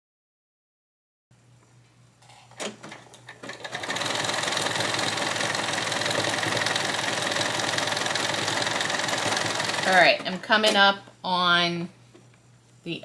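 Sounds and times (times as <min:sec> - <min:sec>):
electric sewing machine running: 0:03.3 - 0:10.4.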